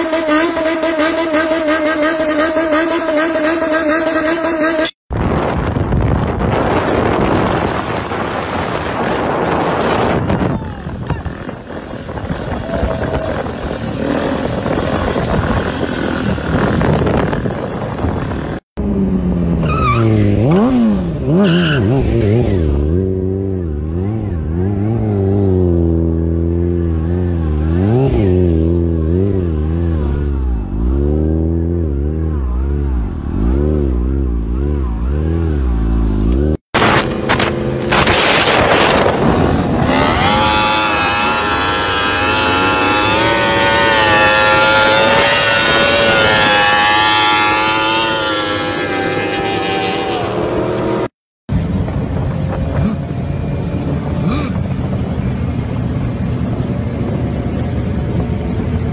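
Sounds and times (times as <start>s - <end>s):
motorcycle engine revving: 0.0s - 58.9s
high-pitched engine rushing: 32.4s - 58.8s.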